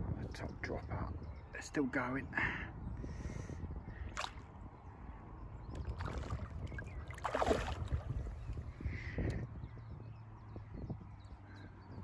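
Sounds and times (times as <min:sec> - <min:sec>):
wind rumble on microphone: 0:00.0 - 0:12.0
fish splashing at surface: 0:07.2 - 0:08.2.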